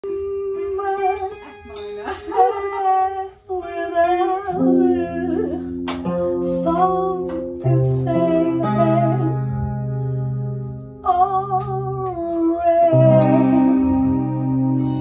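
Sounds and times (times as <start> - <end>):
woman singing: 0.0 - 10.0, 11.0 - 15.0
guitar: 0.0 - 15.0
held low chords: 4.5 - 15.0.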